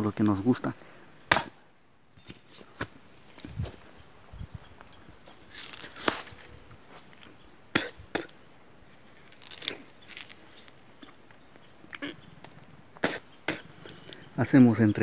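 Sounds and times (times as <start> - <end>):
teeth crunching sugarcane: 5.4 - 6.3, 9.2 - 12.2.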